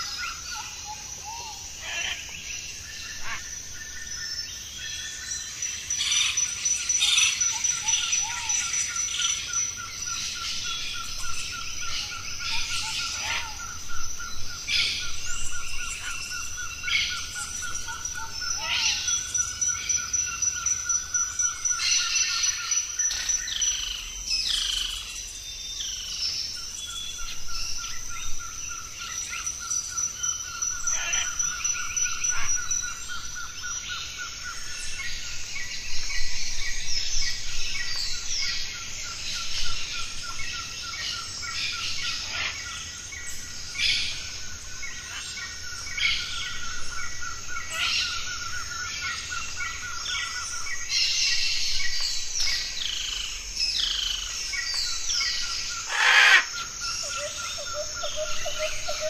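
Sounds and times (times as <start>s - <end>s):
birds calling and chirping: 0.0s - 59.0s
high insect whine: 0.0s - 59.0s.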